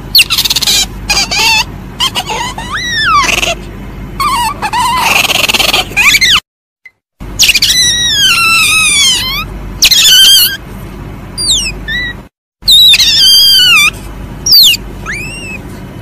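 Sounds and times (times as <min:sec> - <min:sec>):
civet shrill high-pitched calls: 0:00.2 - 0:03.6, 0:07.4 - 0:10.6, 0:11.4 - 0:15.6.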